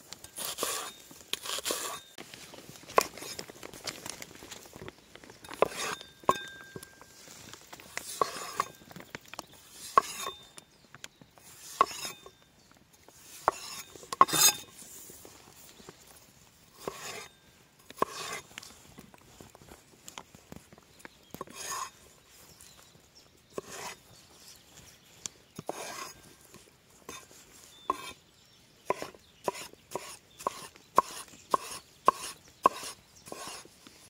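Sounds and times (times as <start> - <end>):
knife cutting through vegetable: 0.4 - 2.0.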